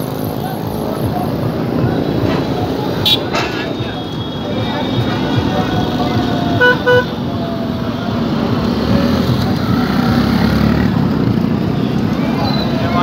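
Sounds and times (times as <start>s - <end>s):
crowd noise: 0.0s - 13.0s
passing vehicles rumbling: 0.0s - 13.0s
horn toot: 6.6s - 7.2s.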